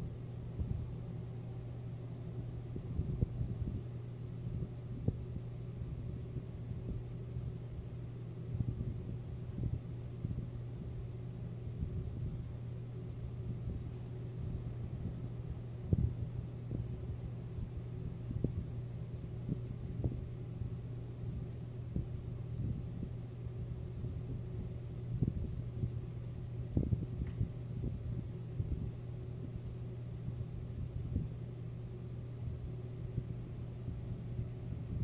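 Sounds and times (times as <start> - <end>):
steady low hum: 0.0 - 35.0
soft low thumps: 26.7 - 29.6.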